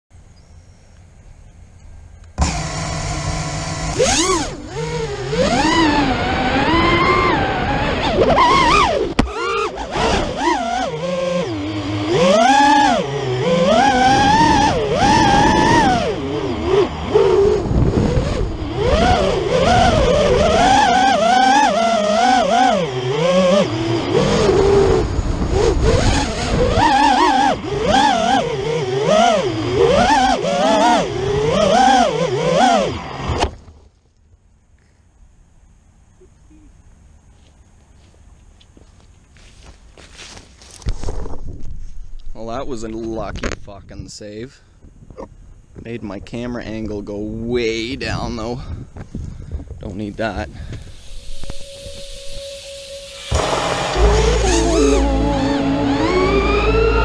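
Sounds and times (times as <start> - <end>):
quadcopter motors whining: 2.2 - 33.5, 49.9 - 57.0
wind noise on microphone: 2.4 - 12.2, 12.8 - 31.8, 40.8 - 44.2, 44.8 - 57.0.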